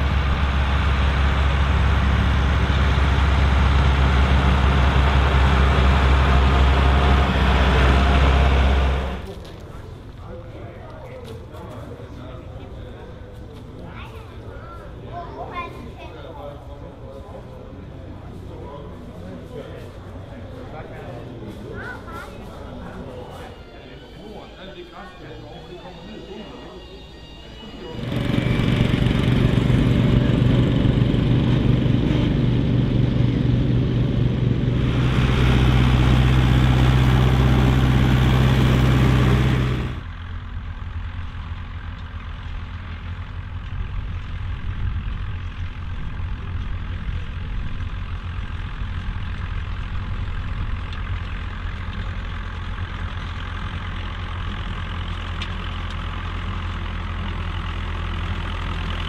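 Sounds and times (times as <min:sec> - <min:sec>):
small tractor engine running hard: 0:00.0 - 0:10.1, 0:27.8 - 0:59.0
tractor engine running under load: 0:00.0 - 0:14.5, 0:27.8 - 0:59.0.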